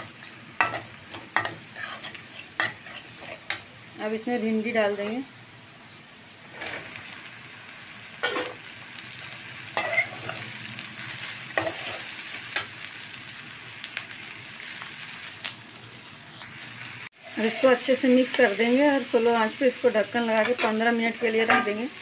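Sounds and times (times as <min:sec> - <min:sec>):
metal spatula scraping a pan: 0:00.0 - 0:03.7, 0:09.8 - 0:12.7, 0:17.2 - 0:18.6
frying in oil sizzling: 0:00.0 - 0:22.0.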